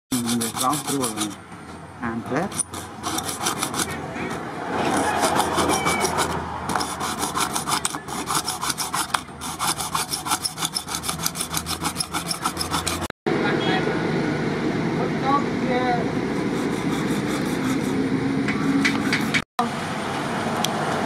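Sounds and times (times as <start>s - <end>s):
saw rasping through plastic cup: 0.1s - 1.4s, 2.5s - 4.0s, 4.8s - 13.1s, 16.3s - 18.0s, 18.7s - 19.4s.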